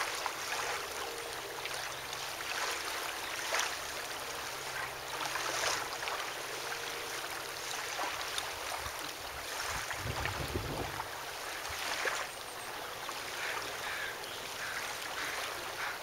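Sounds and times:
small waves washing in: 0:00.0 - 0:16.0.

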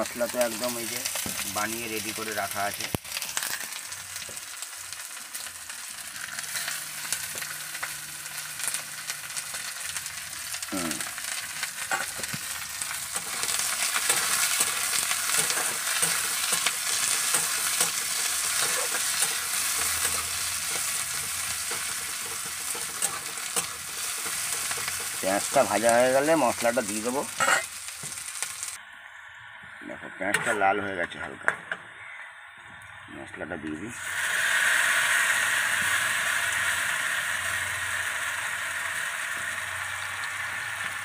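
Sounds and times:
onions sizzling in hot oil: 0:00.0 - 0:29.5, 0:32.8 - 0:41.0
metal spatula scraping pan: 0:13.1 - 0:25.2, 0:27.4 - 0:27.7.

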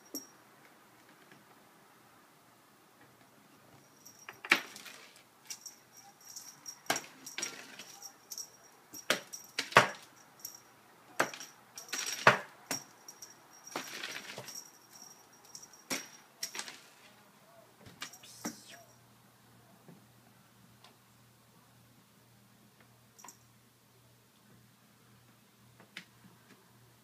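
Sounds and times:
light metallic jingle: 0:00.0 - 0:00.4, 0:03.7 - 0:17.1, 0:18.0 - 0:19.0, 0:23.1 - 0:23.6.

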